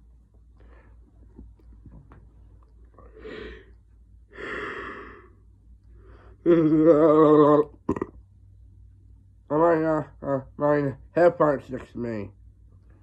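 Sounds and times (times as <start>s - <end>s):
man yawning: 6.4s - 7.8s.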